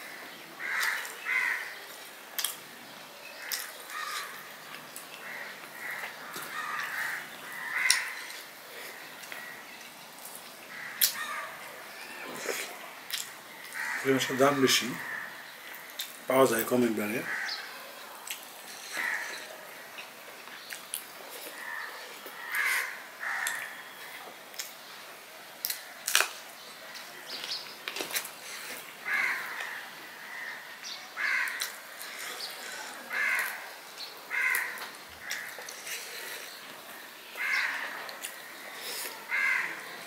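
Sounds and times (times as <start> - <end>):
bird cawing: 0.0 - 1.8, 3.4 - 4.5, 5.2 - 9.7, 10.7 - 12.3, 13.5 - 16.0, 17.2 - 17.8, 18.8 - 19.5, 21.5 - 24.0, 28.4 - 36.6, 37.2 - 40.0.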